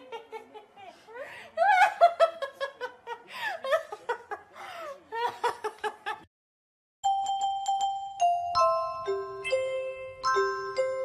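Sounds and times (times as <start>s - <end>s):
woman laughing and giggling: 0.0s - 6.2s
glockenspiel tune: 7.0s - 11.0s.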